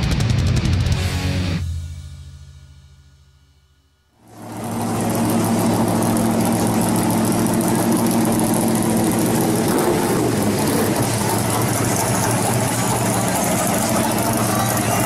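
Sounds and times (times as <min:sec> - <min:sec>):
music: 0:00.0 - 0:04.0
car engine idling: 0:04.2 - 0:15.0.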